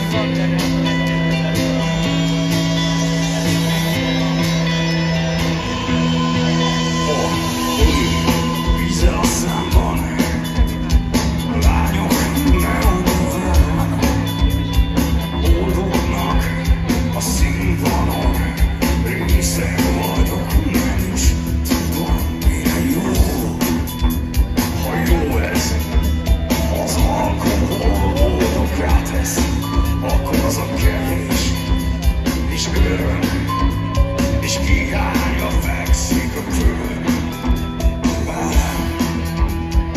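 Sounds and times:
man singing: 0.0s - 2.2s, 6.2s - 39.9s
drums steady beat: 0.0s - 39.9s
live rock band: 0.0s - 39.9s.

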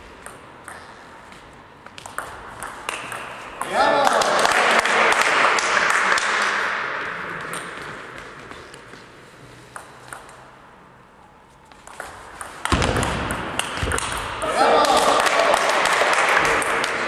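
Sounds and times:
audience applauding: 14.8s - 17.0s.

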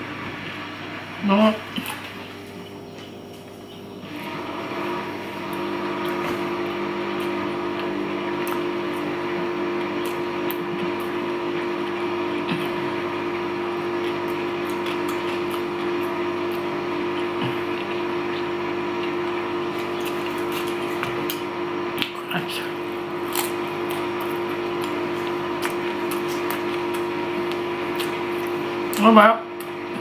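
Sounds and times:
dishwasher humming: 0.0s - 30.0s.

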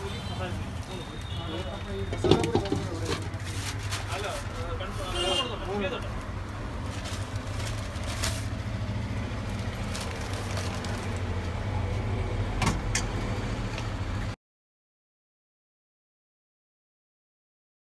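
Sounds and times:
street background rumble: 0.0s - 14.4s.

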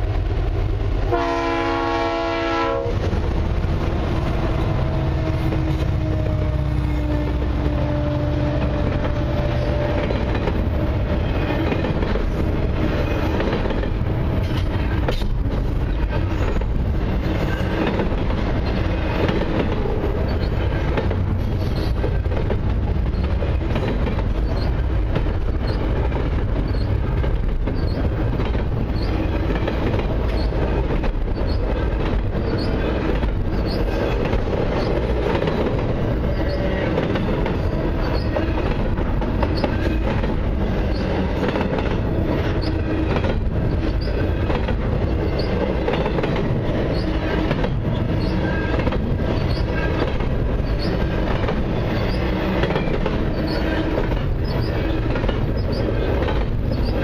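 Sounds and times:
train wheels rumbling on rails: 0.0s - 57.0s
faint high wheel squeals: 24.4s - 24.8s, 26.6s - 27.0s, 38.0s - 38.5s, 53.3s - 55.9s.

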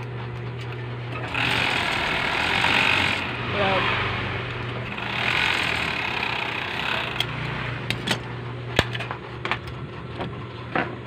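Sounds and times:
sewing machine motor humming: 0.0s - 8.5s
sewing machine stitching: 1.1s - 3.3s, 4.9s - 7.4s.

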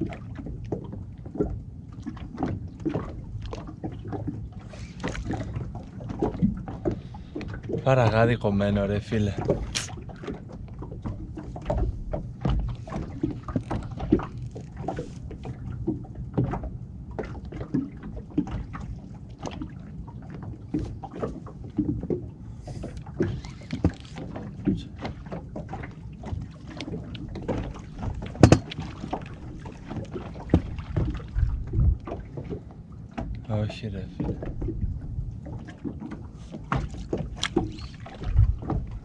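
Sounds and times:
low rumble: 30.7s - 32.4s, 37.9s - 39.0s.

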